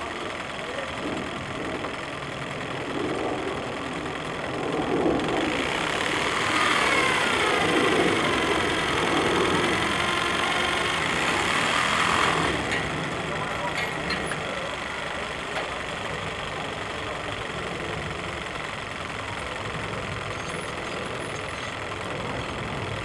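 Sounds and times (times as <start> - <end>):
steam winch clattering: 5.4 - 23.0.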